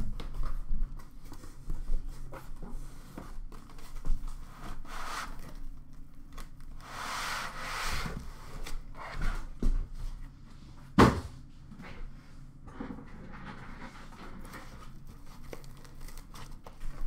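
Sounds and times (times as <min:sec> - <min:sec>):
cardboard and foam scraping: 0:06.8 - 0:09.5.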